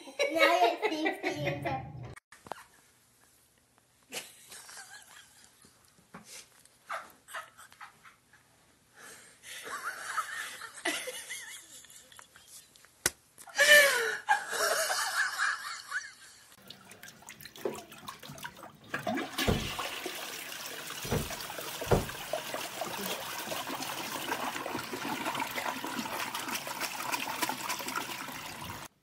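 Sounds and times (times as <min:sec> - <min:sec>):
toilet flushing: 0:16.6 - 0:29.0
dull thumps: 0:19.4 - 0:19.8, 0:21.0 - 0:22.3.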